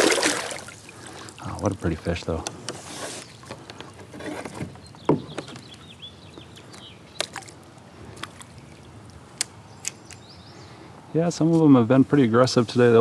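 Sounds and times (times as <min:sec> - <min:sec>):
water splashing and dripping: 0:00.0 - 0:02.2, 0:06.6 - 0:09.6.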